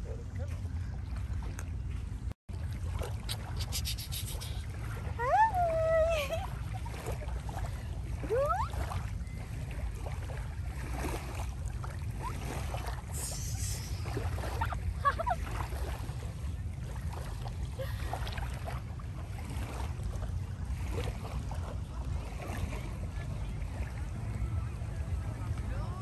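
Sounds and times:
wind rumble on microphone: 0.0 - 26.0
faint distant voices: 21.4 - 26.0.

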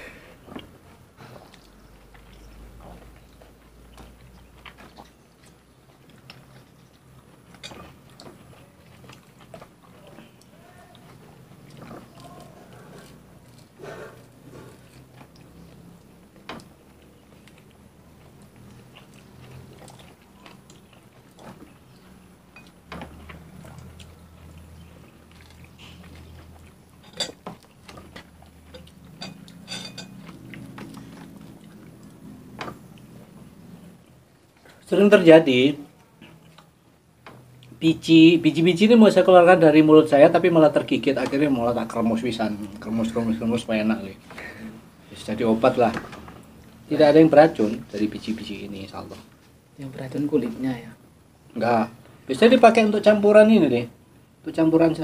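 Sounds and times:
faint chewing: 0.0 - 34.9, 35.8 - 37.8
faint low hum: 0.0 - 55.0
small clicks and taps of eating: 14.9 - 33.1.

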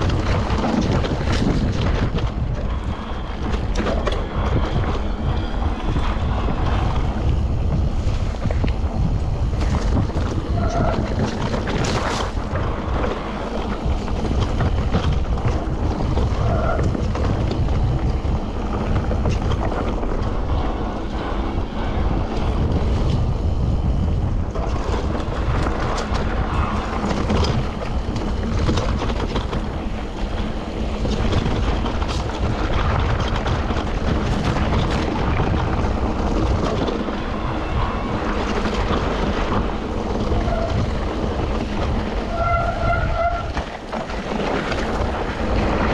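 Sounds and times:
wind buffeting microphone: 0.0 - 45.9.

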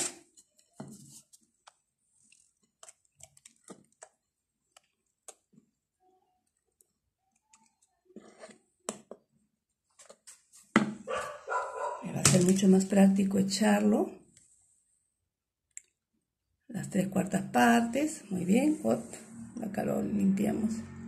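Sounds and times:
knock: 10.8 - 11.0.

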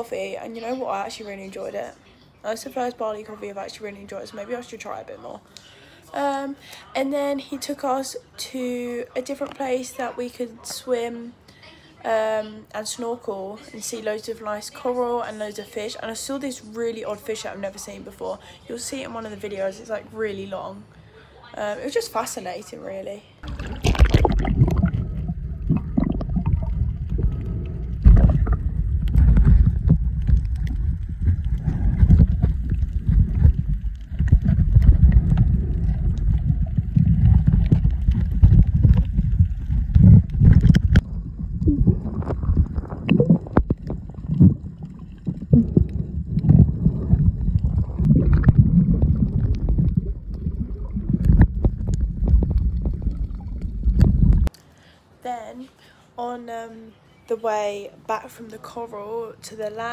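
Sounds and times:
bubbles: 23.4 - 54.5
muffled underwater rumble: 23.4 - 54.5
underwater clicks: 23.4 - 54.6.

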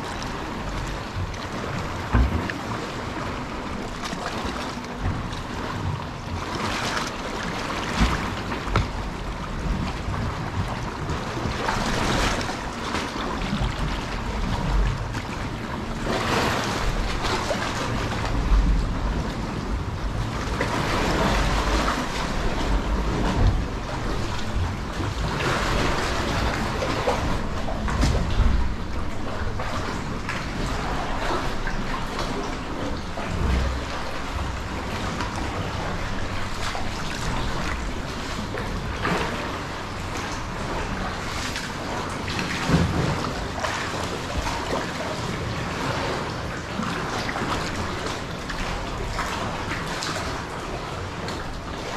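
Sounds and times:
water sloshing around kayak: 0.0 - 51.9.

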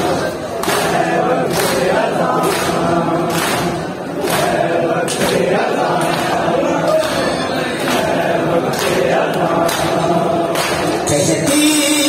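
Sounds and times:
crowd of men chanting: 0.0 - 12.0
hands slapping chests: 0.6 - 6.4.

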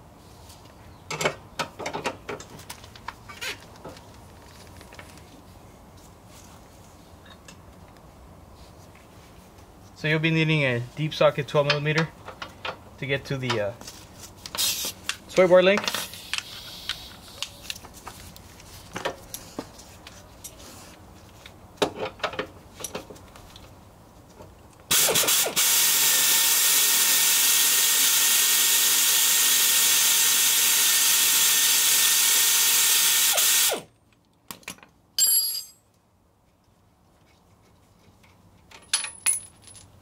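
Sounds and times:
pneumatic air ratchet running: 16.0 - 17.2, 24.9 - 33.8.

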